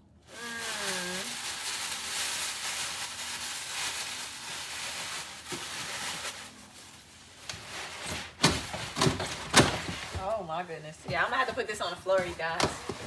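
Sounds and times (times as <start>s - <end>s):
packaging rustling and scraping: 0.4s - 10.5s.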